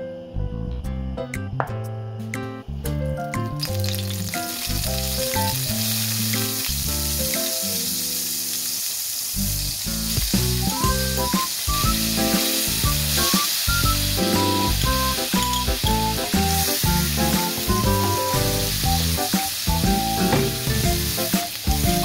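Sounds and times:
garlic frying: 3.4s - 22.0s
butter sizzling in frying pan: 3.6s - 22.0s.

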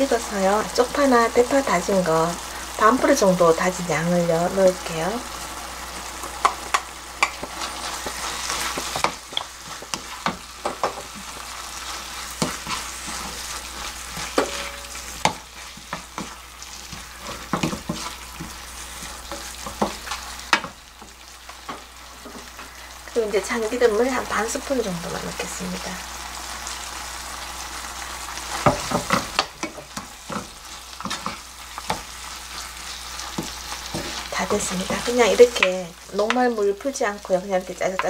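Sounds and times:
food sizzling in a frying pan: 0.0s - 38.0s
wooden spatula scraping pan: 7.2s - 22.8s, 28.4s - 35.7s.

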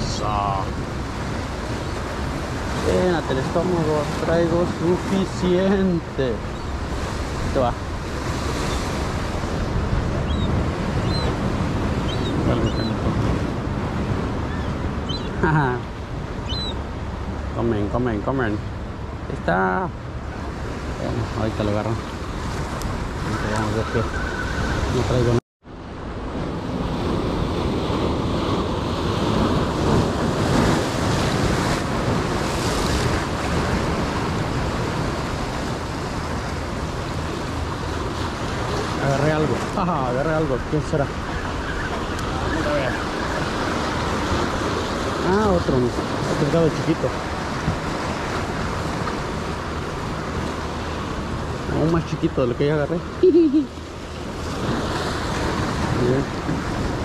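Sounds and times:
wind buffeting microphone: 0.0s - 19.3s, 19.9s - 52.2s
surf on rocks: 0.0s - 57.0s.

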